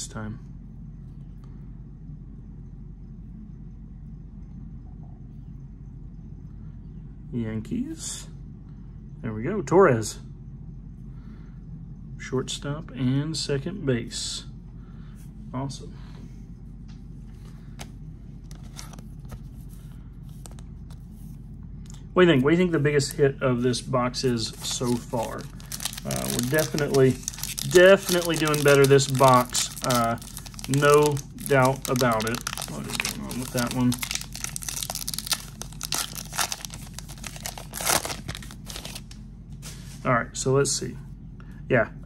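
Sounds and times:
low steady hum: 0.0s - 42.0s
cards rustling and ticking: 16.9s - 22.0s, 24.2s - 39.8s
wrapper being torn and crinkled: 24.6s - 39.2s.

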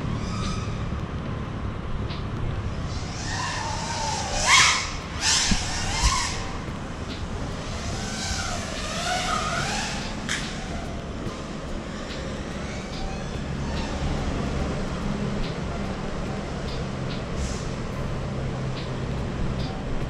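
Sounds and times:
drone motors whining: 2.6s - 20.0s.

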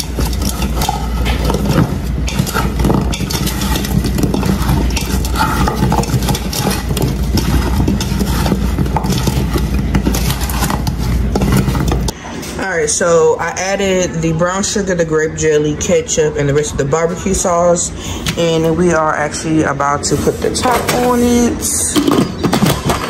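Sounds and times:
steady low hum: 0.0s - 12.6s
wooden spoon scraping metal pot: 0.0s - 13.0s, 19.8s - 23.0s.

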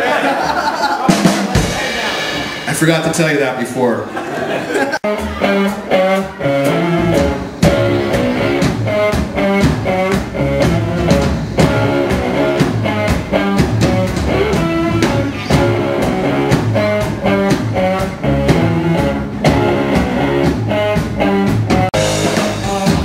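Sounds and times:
drum kit beat: 0.2s - 3.8s, 4.9s - 23.0s
electric guitars: 5.0s - 23.0s.

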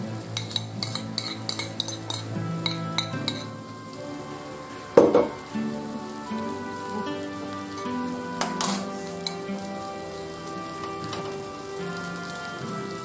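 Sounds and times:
background music: 0.0s - 13.0s
utensils clinking on cookware: 0.4s - 3.5s, 8.4s - 9.4s
knock: 5.0s - 5.3s.

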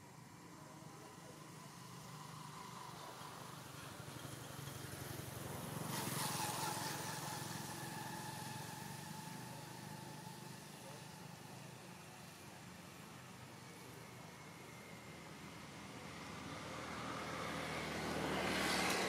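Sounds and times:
vehicle engine passing by: 4.1s - 11.0s, 16.3s - 19.0s.

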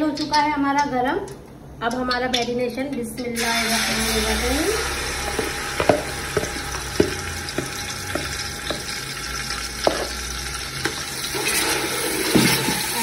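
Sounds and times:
chicken sizzling in hot oil: 3.4s - 13.0s
spoon knocking on pan: 5.2s - 9.0s, 9.8s - 10.2s.

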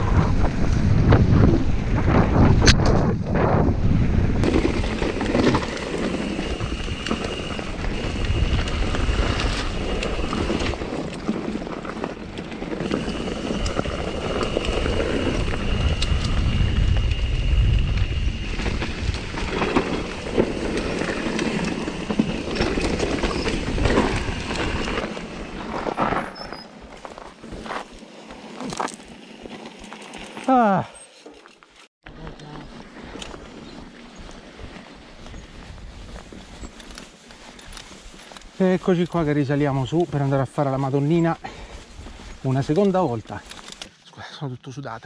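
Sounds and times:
wind buffeting microphone: 0.0s - 25.8s, 32.9s - 37.0s
bike tyres and rattling: 0.0s - 31.9s, 32.6s - 44.0s
thin high whine: 4.5s - 11.1s, 12.8s - 26.8s.

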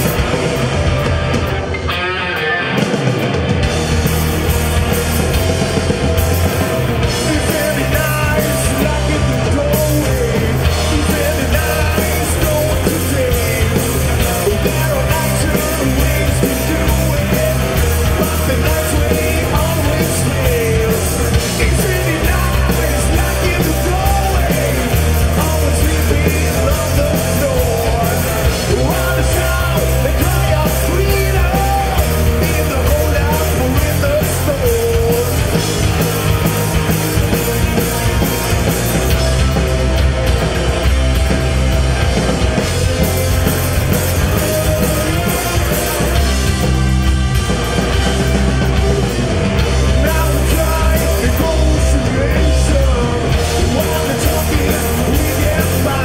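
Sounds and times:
drum kit: 0.0s - 56.0s
electric guitars: 0.0s - 56.0s
person singing: 7.0s - 36.0s, 49.8s - 56.0s.

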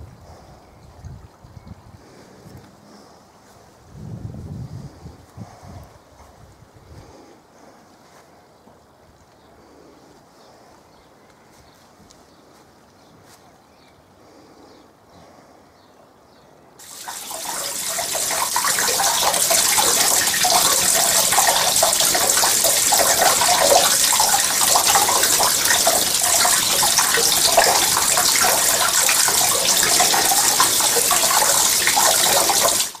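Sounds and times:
fountain splashing into pond: 16.8s - 33.0s.

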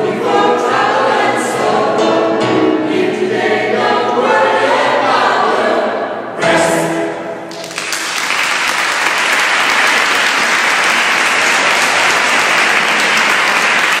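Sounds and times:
audience applauding: 7.5s - 14.0s.

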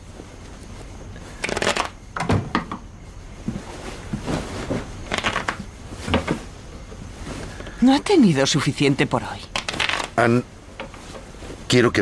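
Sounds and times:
playing cards shuffling: 1.4s - 2.0s, 5.1s - 5.7s, 9.6s - 10.2s.

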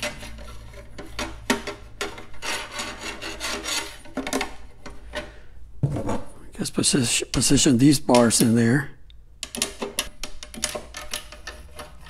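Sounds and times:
rubbing and scraping: 0.0s - 6.4s, 10.4s - 12.0s.

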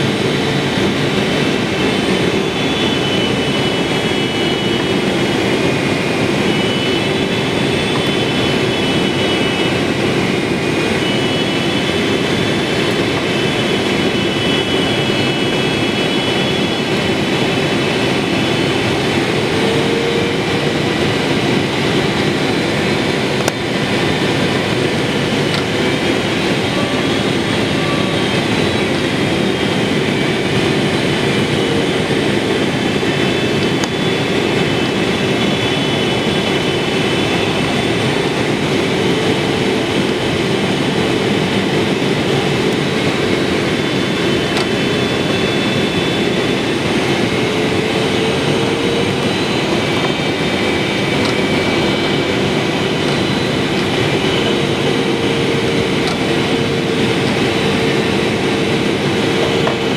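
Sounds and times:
airplane cabin engine rush: 0.0s - 59.9s
faint high whining tones: 0.1s - 59.9s.

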